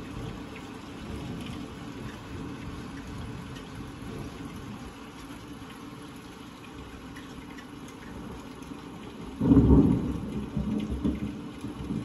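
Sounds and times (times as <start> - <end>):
steady rain: 0.0 - 12.0
thunder crack and rumble: 0.1 - 4.9, 9.3 - 12.0.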